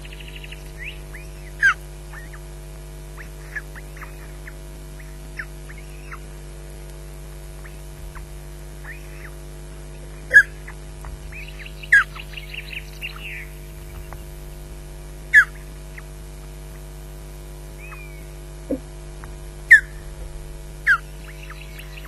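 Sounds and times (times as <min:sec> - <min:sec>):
osprey whistled calls: 0:00.0 - 0:02.4, 0:03.2 - 0:06.3, 0:07.6 - 0:09.4, 0:10.1 - 0:14.3, 0:15.3 - 0:16.1, 0:17.8 - 0:18.8, 0:19.7 - 0:20.1, 0:20.8 - 0:22.0
soft bird chirps: 0:00.0 - 0:02.4, 0:03.2 - 0:06.3, 0:07.6 - 0:14.3, 0:17.8 - 0:18.8, 0:20.8 - 0:22.0
low electrical hum: 0:00.0 - 0:22.0.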